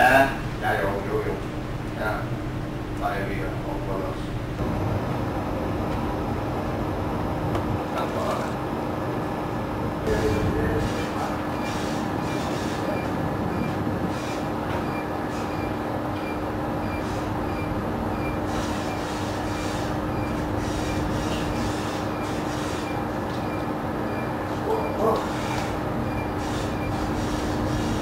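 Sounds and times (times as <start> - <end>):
low engine hum: 0.0 - 18.4
rushing wind: 4.3 - 16.7.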